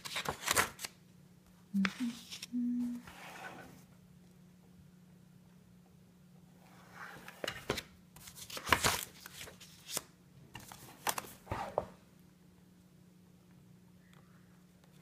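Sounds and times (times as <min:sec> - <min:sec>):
sketchbook page turning: 0:00.0 - 0:01.0, 0:01.8 - 0:02.6, 0:07.1 - 0:11.8.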